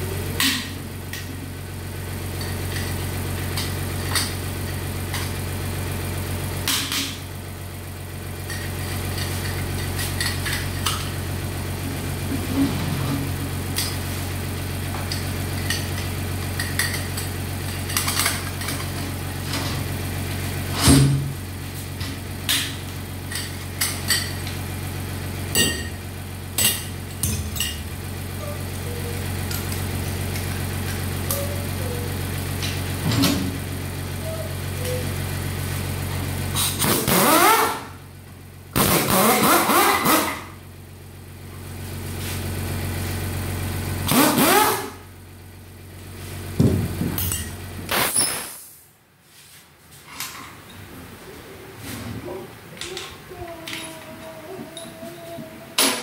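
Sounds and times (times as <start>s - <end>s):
steady low hum: 0.0s - 56.0s
pneumatic impact wrench: 6.6s - 7.2s, 20.6s - 21.4s, 36.5s - 38.1s, 38.7s - 40.6s, 44.0s - 45.1s, 46.6s - 49.0s.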